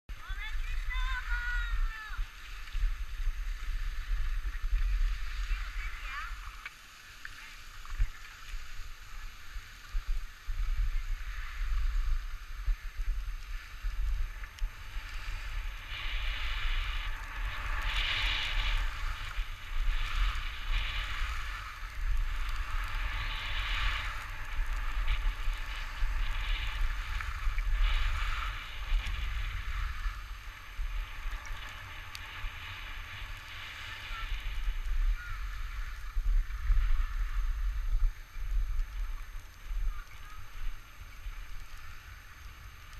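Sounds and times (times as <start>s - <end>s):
skis scraping on snow: 0.1s - 42.9s
wind rumbling on microphone: 0.1s - 42.9s.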